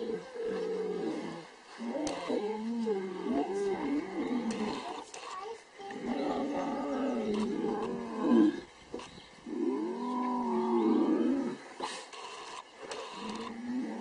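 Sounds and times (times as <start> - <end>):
lions calling: 5.9 - 8.7.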